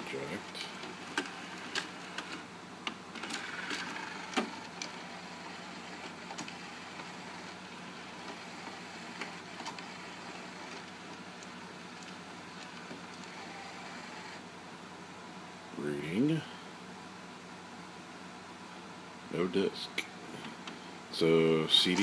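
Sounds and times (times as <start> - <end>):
cd tray motor whirring: 0.0 - 14.5.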